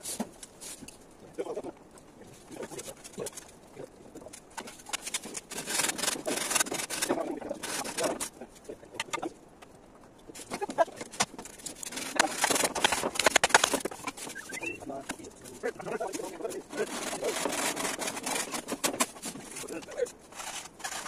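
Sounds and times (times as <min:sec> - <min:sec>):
tools rasping bamboo: 0:04.6 - 0:08.4, 0:11.0 - 0:14.5, 0:16.1 - 0:21.0.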